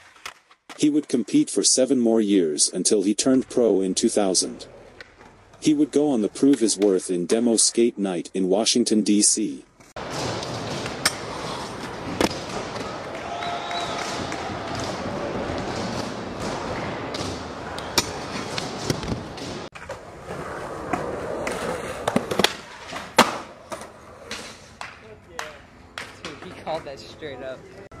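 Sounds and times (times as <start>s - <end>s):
skateboard wheels rolling on concrete: 9.1s - 28.0s
skateboard clacking: 17.2s - 27.2s.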